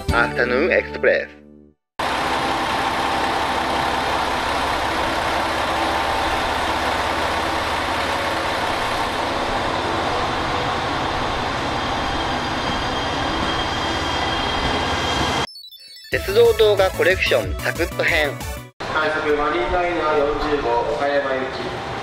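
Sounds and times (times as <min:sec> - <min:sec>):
electric train running: 0:02.0 - 0:15.5
faint train whine: 0:02.0 - 0:15.5.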